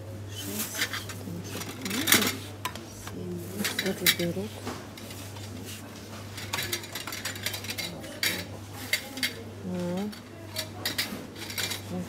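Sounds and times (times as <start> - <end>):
small goods clattering on shelf: 6.2 - 9.4, 10.0 - 12.0.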